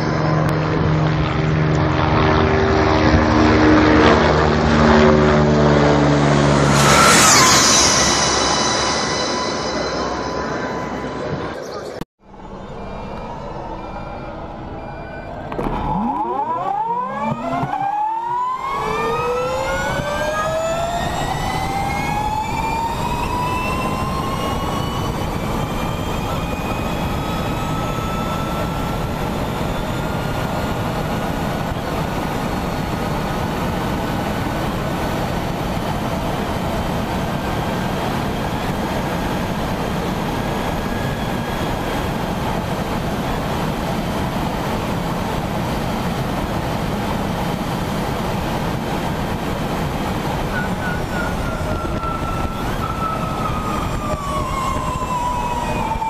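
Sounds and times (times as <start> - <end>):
electric motor whine: 0.0 - 11.6
wind and road rush: 0.0 - 13.7, 14.4 - 56.0.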